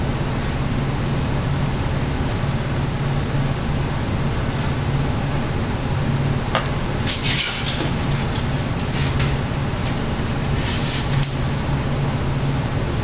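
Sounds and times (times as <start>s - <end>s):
background hum and hiss: 0.0s - 13.0s
rustling of handled parts: 7.0s - 11.7s.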